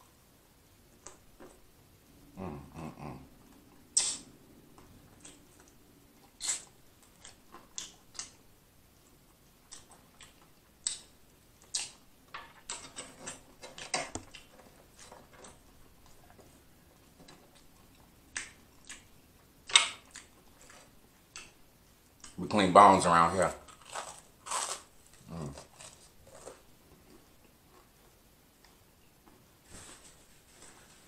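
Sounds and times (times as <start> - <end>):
wet lip smacks while eating: 4.0 - 4.3.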